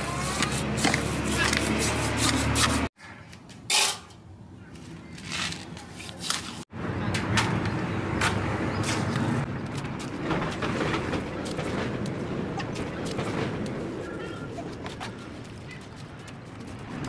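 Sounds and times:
trowel scraping mortar in metal basin: 3.7s - 4.2s.

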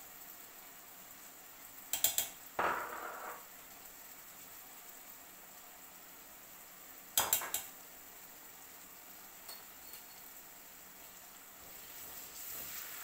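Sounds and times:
vegetables sizzling in pan: 0.0s - 13.0s
spoon knocking on metal pan: 2.1s - 3.4s.

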